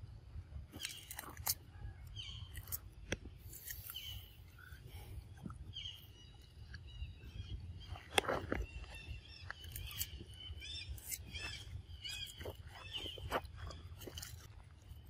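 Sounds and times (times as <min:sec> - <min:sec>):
sharp crunch: 0:00.7 - 0:01.7, 0:02.3 - 0:05.6, 0:07.8 - 0:15.0
macaques chewing fruit: 0:00.7 - 0:15.0
high arching animal chirps: 0:02.0 - 0:14.3.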